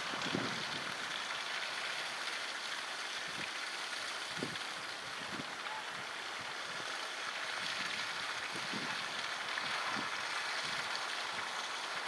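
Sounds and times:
rushing outdoor background noise: 0:00.0 - 0:12.0.

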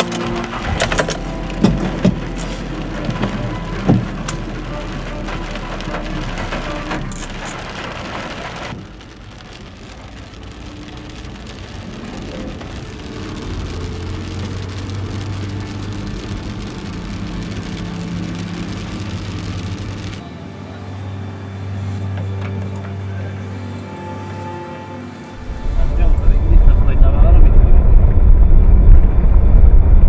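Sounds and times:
rain hitting car windshield: 0:00.0 - 0:20.2, 0:25.4 - 0:27.4
engine and tyre hum: 0:00.0 - 0:30.0.

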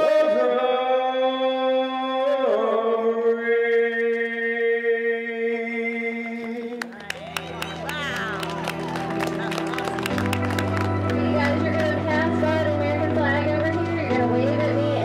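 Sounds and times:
man singing into microphone: 0:00.0 - 0:06.8.

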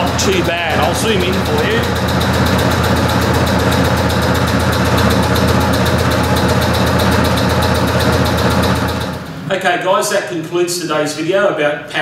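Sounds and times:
air compressor chugging: 0:00.0 - 0:09.6.

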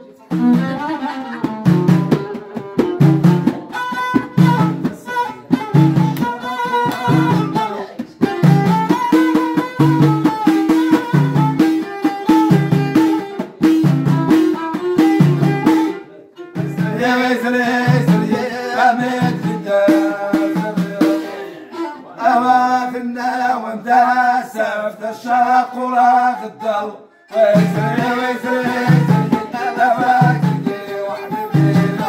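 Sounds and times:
violin playing: 0:00.0 - 0:22.5, 0:25.7 - 0:32.0
frame drums beating: 0:00.3 - 0:16.0, 0:16.6 - 0:21.4, 0:27.4 - 0:32.0
man singing: 0:04.4 - 0:08.6, 0:16.5 - 0:32.0.

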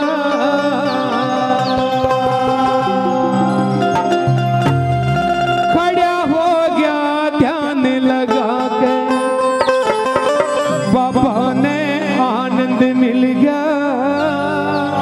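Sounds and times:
man singing devotional melody: 0:00.0 - 0:03.9, 0:05.5 - 0:15.0
sustained instrumental accompaniment: 0:00.0 - 0:15.0
drum strokes: 0:09.5 - 0:11.9.

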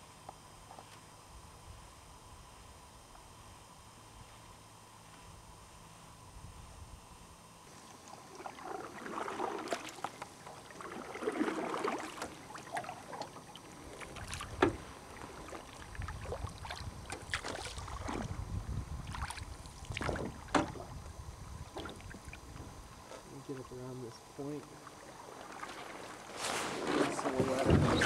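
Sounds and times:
water against hull: 0:07.7 - 0:28.0
wind rumble on microphone: 0:14.4 - 0:23.0, 0:26.9 - 0:28.0.

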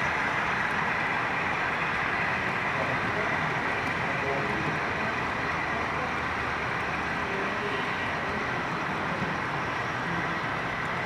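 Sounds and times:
model train wheels on track: 0:00.0 - 0:11.0.

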